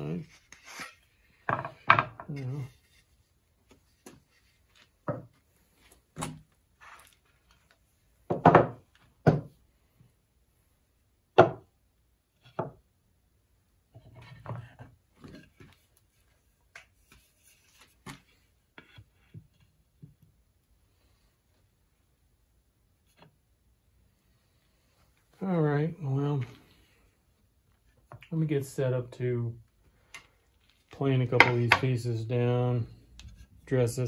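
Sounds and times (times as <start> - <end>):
wooden boards knocking on bench: 1.5 - 2.3, 8.3 - 9.5, 11.4 - 11.7.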